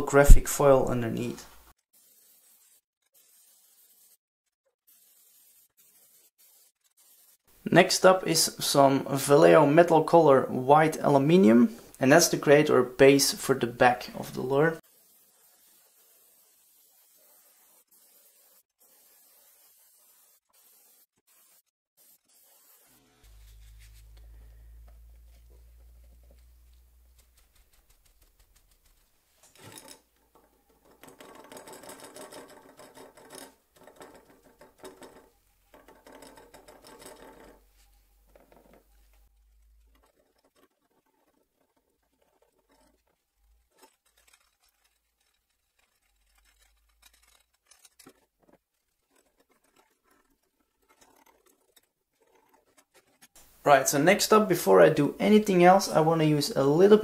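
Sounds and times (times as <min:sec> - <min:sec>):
paper towel rustling on plastic: 0:22.4 - 0:29.7
low steady hum: 0:23.2 - 0:29.0.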